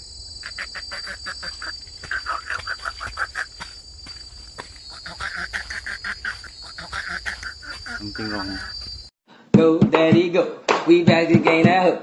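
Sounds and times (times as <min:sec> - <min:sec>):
high-pitched insect drone: 0:00.0 - 0:09.1
rapid pulsing animal calls: 0:00.4 - 0:09.1.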